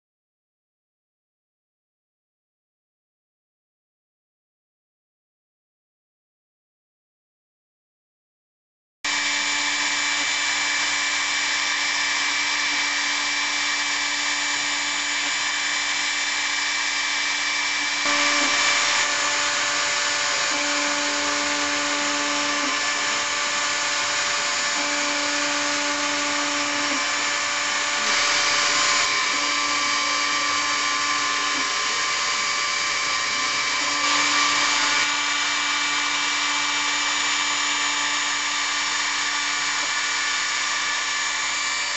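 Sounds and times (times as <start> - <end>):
router spindle whining: 9.1 - 41.9.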